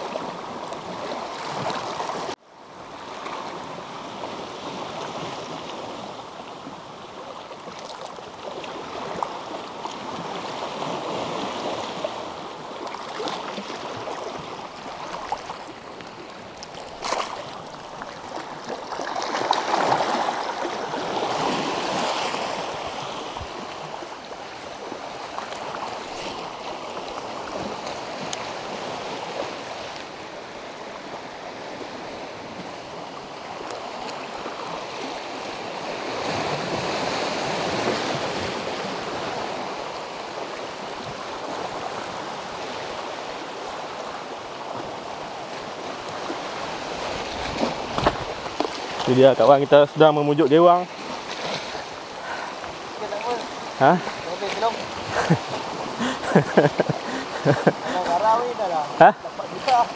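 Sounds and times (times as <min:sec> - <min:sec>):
sea water lapping on rocks: 0:07.6 - 0:30.1, 0:41.0 - 0:59.9.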